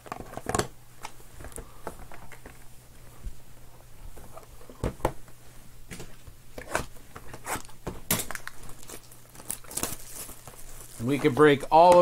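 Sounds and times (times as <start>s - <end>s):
plastic wrapping crinkling: 6.6s - 12.0s.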